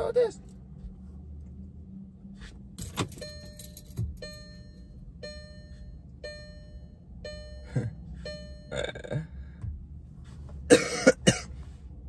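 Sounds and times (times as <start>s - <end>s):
low cabin hum: 0.0s - 12.0s
car warning chime: 2.8s - 9.4s.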